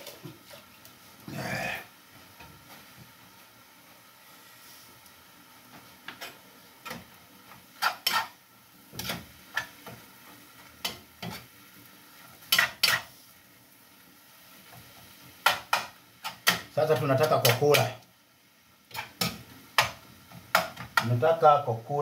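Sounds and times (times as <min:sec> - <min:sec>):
metal spoon scraping frying pan: 0:07.8 - 0:08.4, 0:09.0 - 0:09.8, 0:12.4 - 0:13.2, 0:18.9 - 0:19.4.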